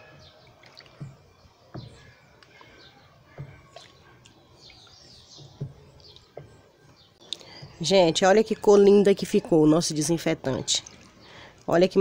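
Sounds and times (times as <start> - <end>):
faint birds chirping: 0.0 - 12.0
stick stirring soapy liquid: 0.3 - 6.6.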